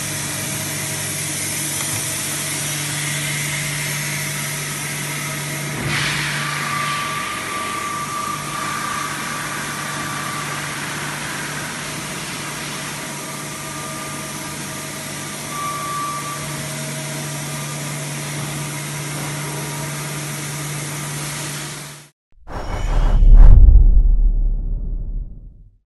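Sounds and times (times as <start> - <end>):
faint high whine: 22.5 - 25.6.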